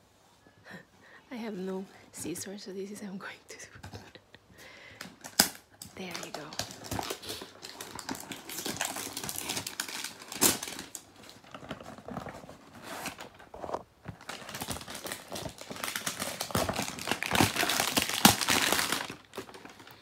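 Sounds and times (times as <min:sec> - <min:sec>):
cardboard packaging crinkling: 0:05.0 - 0:20.0.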